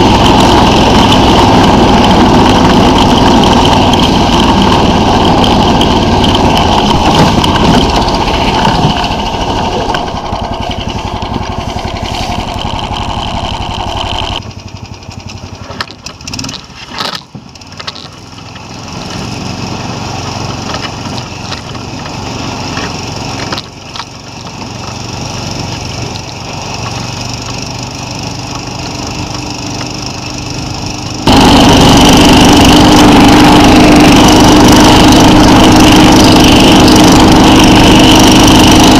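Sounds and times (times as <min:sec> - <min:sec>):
motorized toboggan engine running: 0:00.0 - 0:38.9
knocks and clatters: 0:00.1 - 0:14.4, 0:15.1 - 0:19.4, 0:20.3 - 0:30.6.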